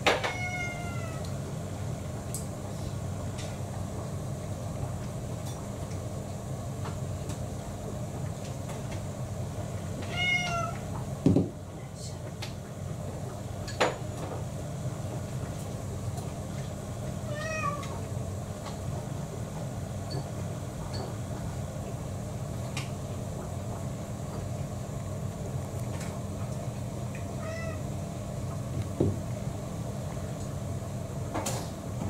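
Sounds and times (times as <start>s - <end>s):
steady low hum: 0.0s - 32.0s
cat meowing: 0.1s - 1.3s, 10.0s - 10.8s, 17.2s - 18.0s, 27.4s - 27.9s.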